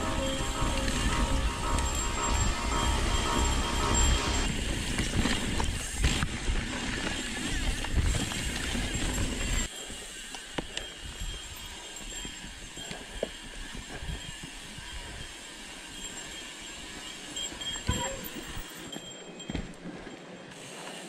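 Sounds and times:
bike tyre rumble: 0.0 - 11.4
bike clicks and rattles: 0.4 - 15.6.

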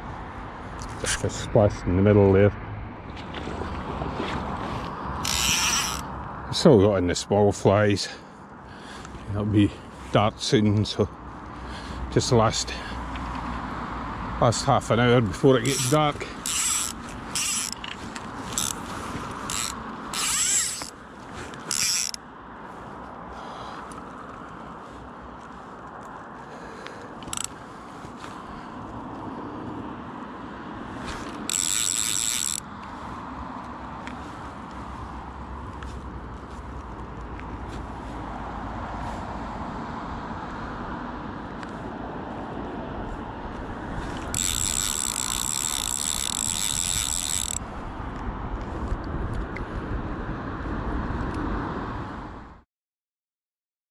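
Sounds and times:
low river noise: 2.6 - 6.8, 7.8 - 48.4
fishing reel ratchet buzzing: 5.2 - 6.1, 15.6 - 22.2, 27.2 - 27.5, 31.0 - 32.9, 44.0 - 47.7.

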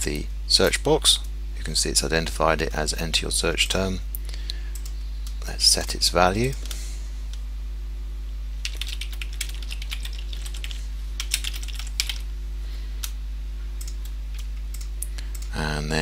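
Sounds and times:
steady low hum: 0.0 - 16.0
typing on computer keyboard: 8.6 - 12.2.

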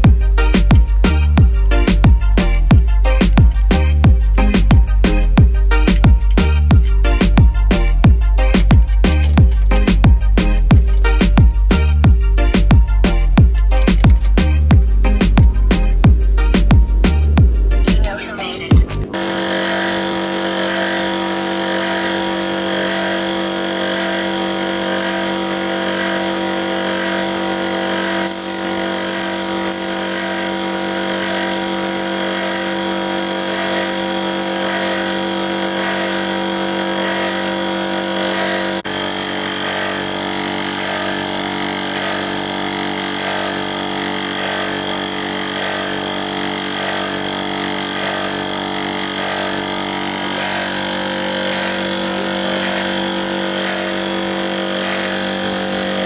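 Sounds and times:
air compressor motor humming: 0.0 - 56.0
spray gun hissing: 19.2 - 56.0.

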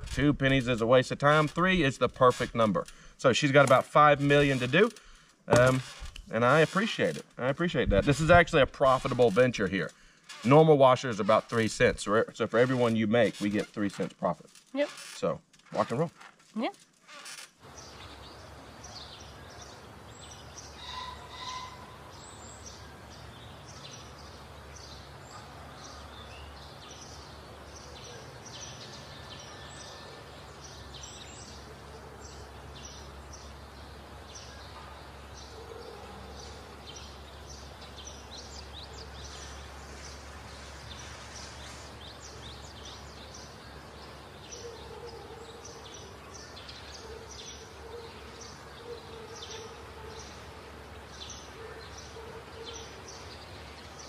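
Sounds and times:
high bird chirps: 17.7 - 50.4.

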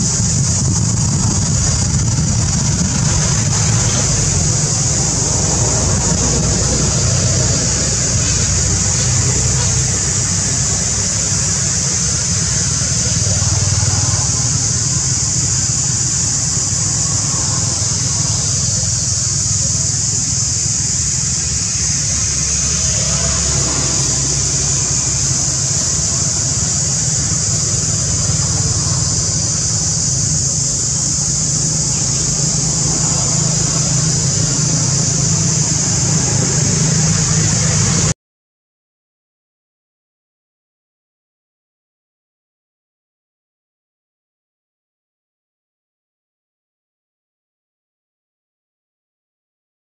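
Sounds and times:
distant traffic rumble: 0.0 - 38.1
high-pitched hiss: 0.0 - 38.2.

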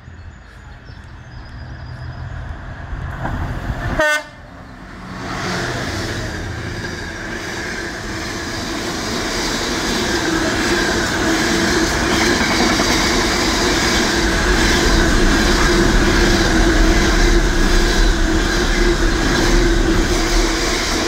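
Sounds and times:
diesel locomotive engine rumbling: 0.0 - 21.0
train horn blast: 3.9 - 4.5.

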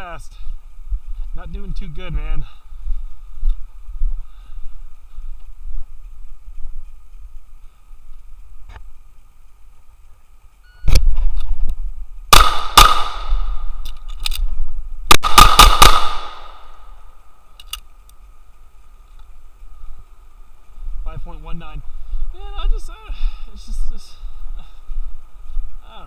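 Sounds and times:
pistol shots with echo: 12.3 - 13.6, 15.1 - 16.6
pistol reload clicks: 12.4 - 14.5, 17.5 - 18.2.

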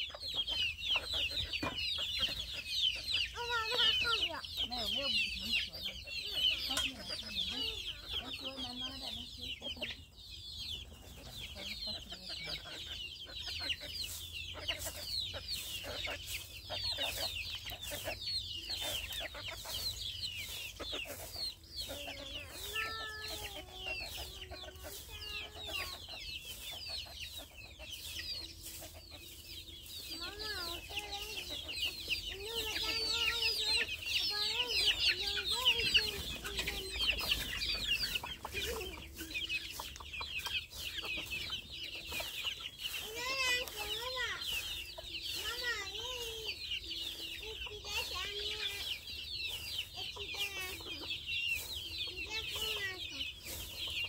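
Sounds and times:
chickens clucking: 0.0 - 54.0
high chirping: 0.0 - 54.0
broom scraping dirt: 10.9 - 54.0.

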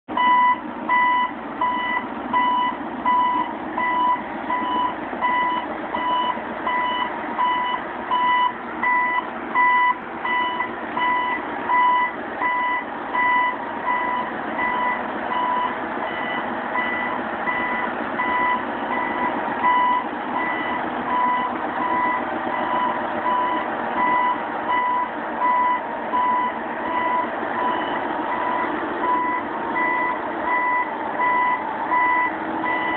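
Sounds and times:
truck engine rumble: 0.1 - 32.9
reversing alarm beeping: 0.2 - 32.9.

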